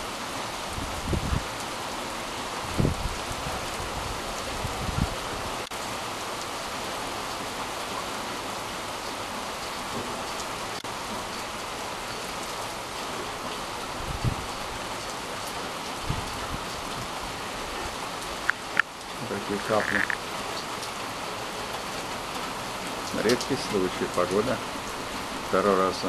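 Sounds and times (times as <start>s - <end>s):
heavy rain: 0.0s - 26.0s.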